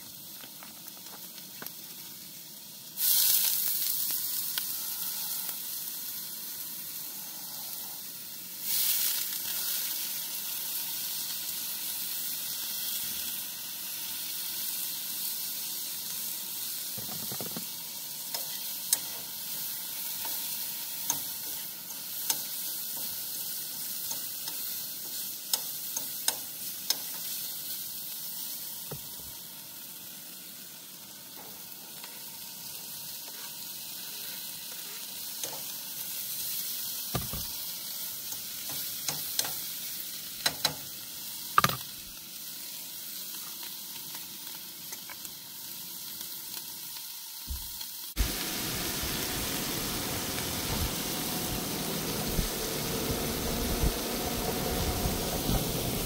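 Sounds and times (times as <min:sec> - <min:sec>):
meat sizzling in a frying pan: 0:00.0 - 0:56.0
utensil clicking against pan: 0:18.3 - 0:19.2, 0:25.5 - 0:27.2, 0:38.6 - 0:39.6, 0:40.4 - 0:40.8.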